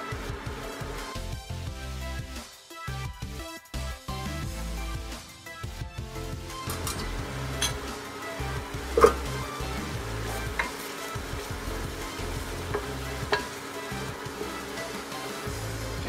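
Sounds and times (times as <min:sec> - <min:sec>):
meat sizzling in a pot: 0:00.0 - 0:01.7, 0:06.2 - 0:16.0
wooden spoon knocking pot: 0:12.6 - 0:13.6.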